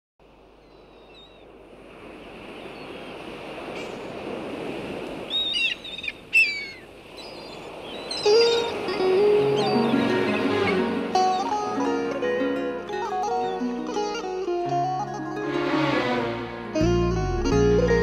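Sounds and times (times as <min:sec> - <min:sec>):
ocean waves breaking: 0:00.2 - 0:18.0
loud bird cries: 0:00.6 - 0:01.5, 0:05.3 - 0:10.4
music: 0:08.3 - 0:18.0.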